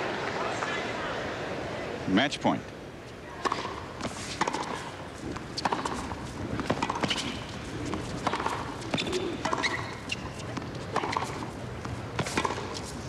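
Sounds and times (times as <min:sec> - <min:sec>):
tennis ball bouncing: 0:03.4 - 0:12.9
rackets striking tennis ball: 0:03.4 - 0:13.0.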